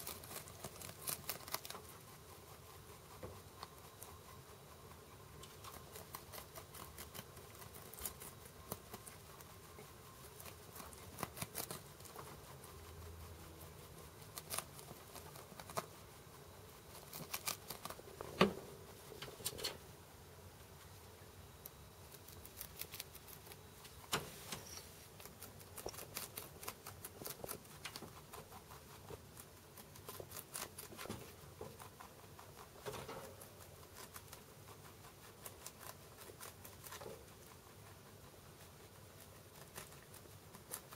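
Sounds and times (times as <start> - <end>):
rabbit chewing cabbage: 0.0 - 40.9.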